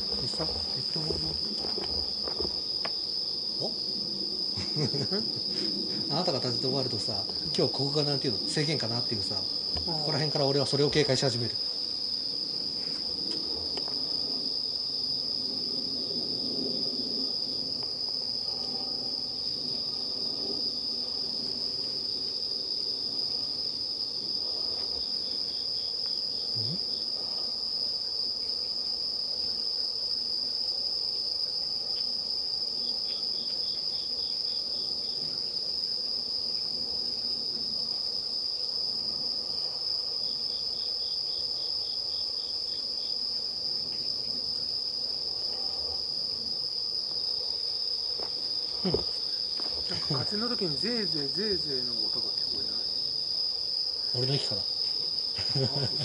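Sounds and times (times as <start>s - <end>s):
insect high-pitched trill: 0.0s - 56.0s
insect rapid pulsed chirps: 0.0s - 56.0s.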